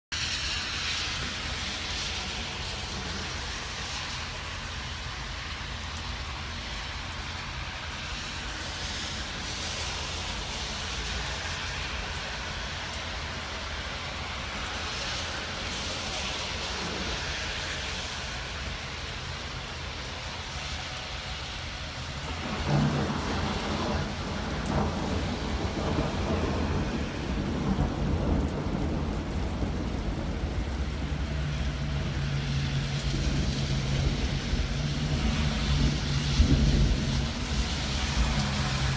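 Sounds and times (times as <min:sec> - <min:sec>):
rain on wet pavement: 0:00.1 - 0:38.9
thunder rumbling: 0:22.2 - 0:38.9.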